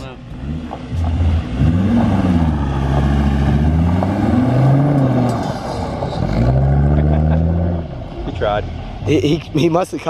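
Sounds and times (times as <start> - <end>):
truck engine revving hard: 0.3 - 7.9.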